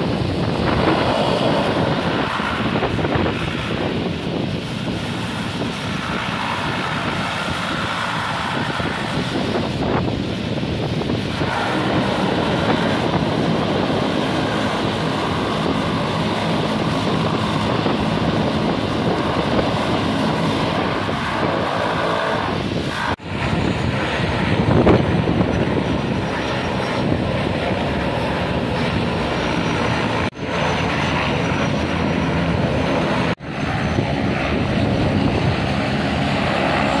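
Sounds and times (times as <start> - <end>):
propeller plane engines droning: 0.0 - 37.0.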